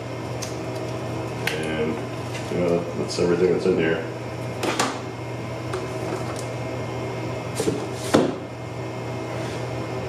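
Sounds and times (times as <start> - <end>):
steady low hum: 0.0 - 10.0
cardboard knocking on desk: 7.6 - 8.4.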